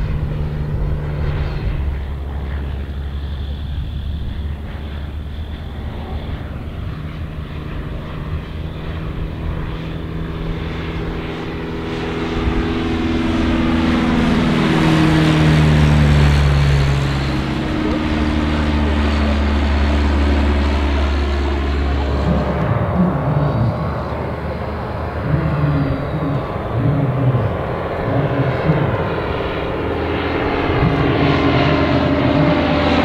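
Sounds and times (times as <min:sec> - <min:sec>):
propeller aircraft engine drone: 0:00.0 - 0:33.0.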